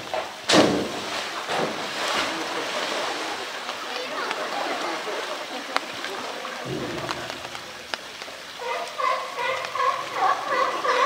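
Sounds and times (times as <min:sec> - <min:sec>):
steady rain: 0:00.0 - 0:11.0
water splashing and sloshing: 0:00.0 - 0:11.0
dull thump: 0:00.5 - 0:01.8.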